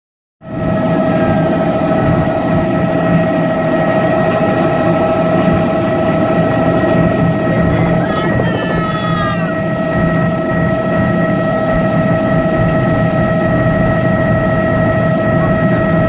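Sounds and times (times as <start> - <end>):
helicopter engine whine: 0.4 - 16.0
helicopter rotor beating: 0.4 - 16.0.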